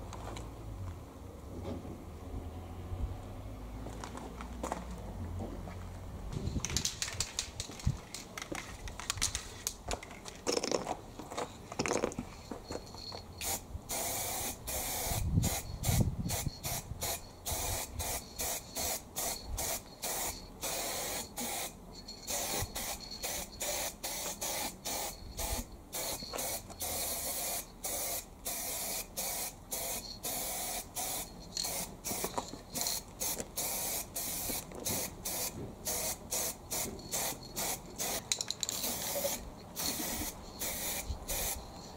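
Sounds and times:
paint spraying in bursts: 13.4s - 41.9s.

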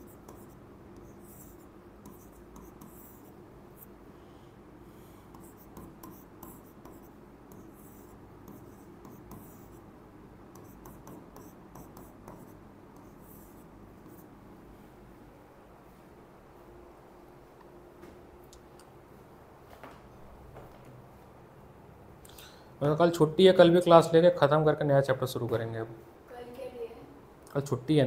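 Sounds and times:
pen scratching while writing: 0.0s - 3.4s, 5.3s - 9.8s, 10.5s - 14.3s.

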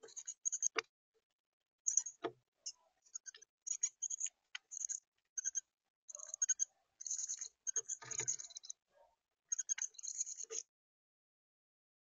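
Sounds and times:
birds clicking and ticking: 3.1s - 8.7s, 9.5s - 10.6s.

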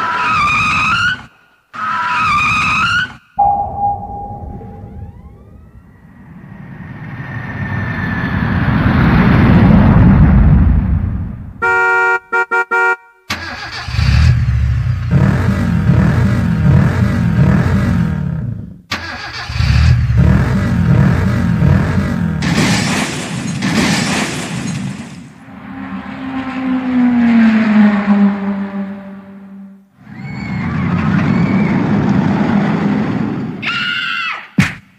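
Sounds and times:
keyboard engine effects: 3.4s - 6.4s.

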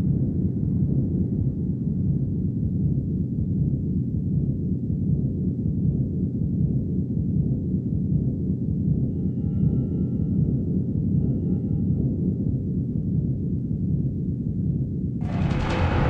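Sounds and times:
deep rumbling drone: 15.2s - 16.0s.

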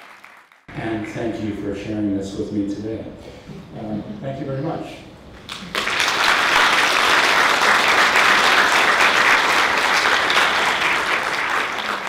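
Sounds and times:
audience applauding: 0.0s - 1.2s, 5.5s - 12.0s.

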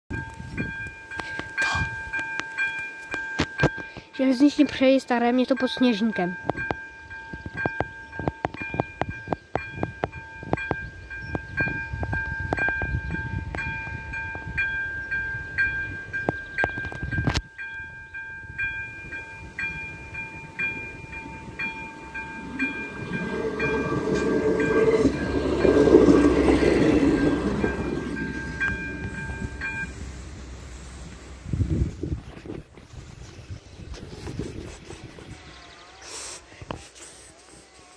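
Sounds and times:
crossing bell electronic chime: 0.1s - 30.1s
train rumbling past: 4.4s - 32.2s.

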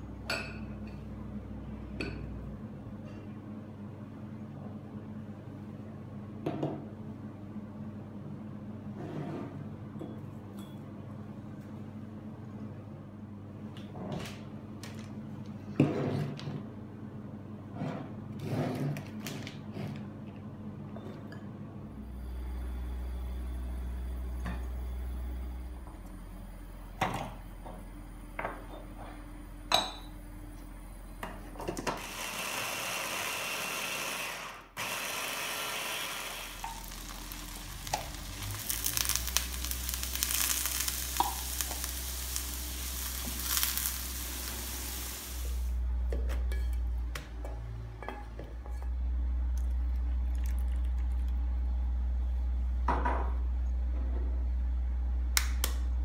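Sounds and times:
onion sizzling in a frying pan: 34.8s - 45.8s.

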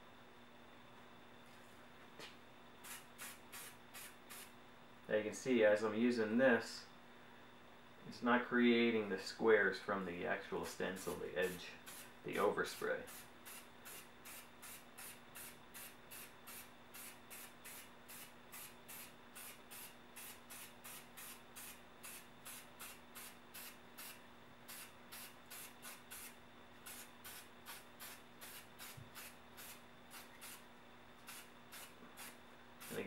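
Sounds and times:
spray paint can bursts: 2.8s - 4.5s, 13.1s - 30.6s, 31.2s - 33.0s.

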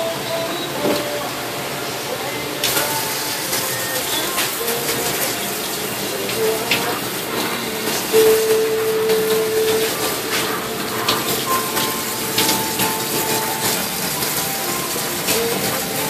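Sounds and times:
water jets hissing and splashing: 0.1s - 16.0s.

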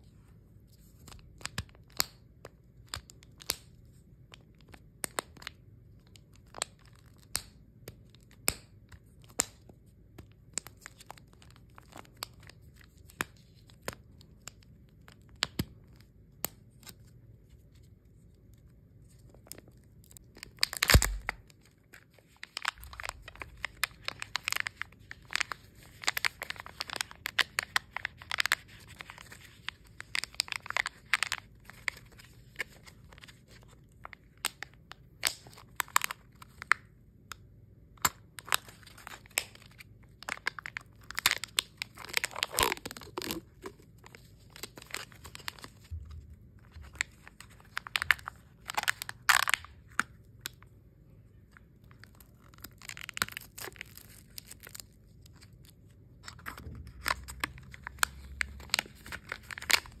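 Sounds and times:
wrapper crinkling and tearing: 10.5s - 16.1s, 19.1s - 36.8s, 38.0s - 50.6s, 51.5s - 60.0s
loud plastic crack: 20.6s - 21.4s.

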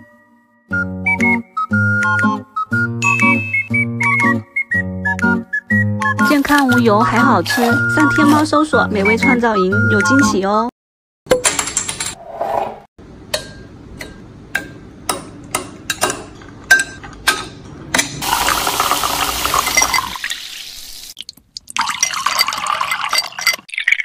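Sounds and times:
fizzy drink pouring over ice: 18.2s - 24.0s
ice cubes clinking into glass: 18.3s - 20.4s, 21.8s - 24.0s.

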